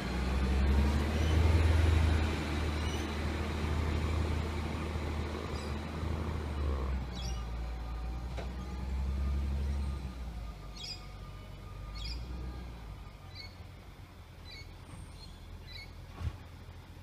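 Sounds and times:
distant diesel truck rumble: 0.0s - 17.0s
birds chirping: 2.5s - 9.9s, 10.7s - 12.3s.

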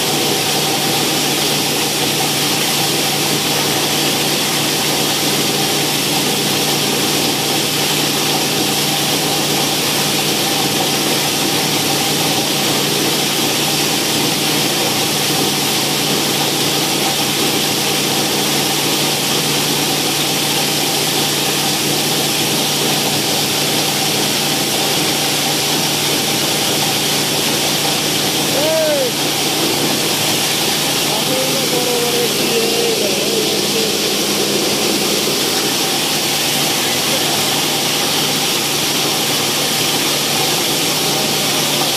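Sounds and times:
plastic granulator grinding bottles: 0.0s - 41.9s
steady motor hum: 0.0s - 41.9s.

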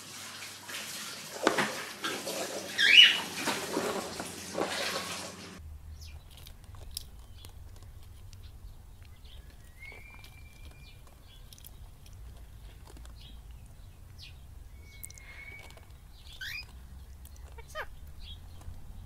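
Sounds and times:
parrots chirping: 2.3s - 4.0s, 5.9s - 19.0s.

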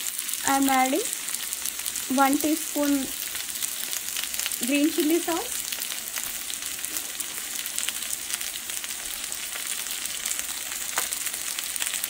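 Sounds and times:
vegetables sizzling in oil: 0.0s - 12.0s
crackling pops: 3.1s - 12.0s.

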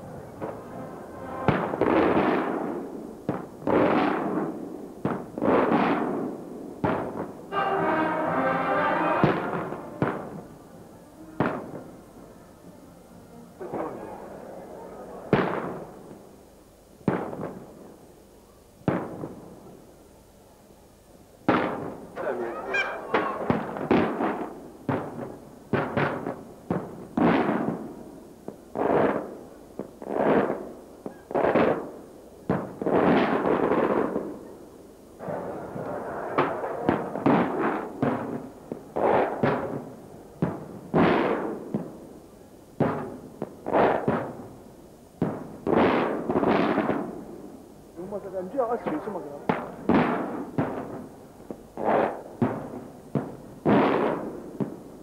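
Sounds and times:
firework shells bursting: 21.5s - 25.2s.

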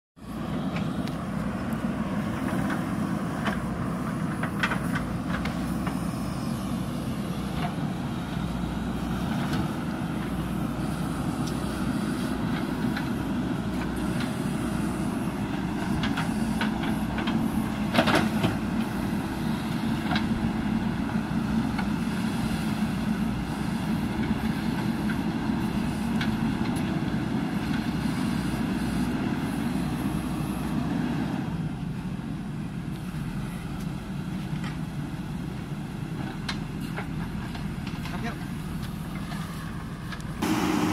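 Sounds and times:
diesel engine under load: 0.2s - 40.9s.

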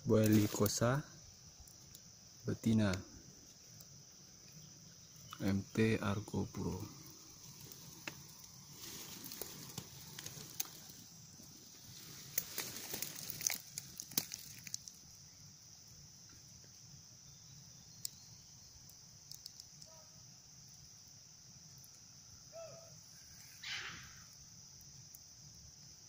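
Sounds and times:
insect chorus drone: 0.0s - 26.0s
faint animal call: 22.5s - 24.4s.

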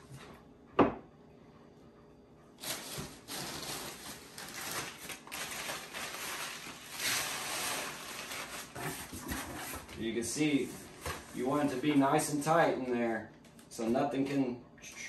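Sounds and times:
packing paper crinkling: 2.6s - 9.9s.

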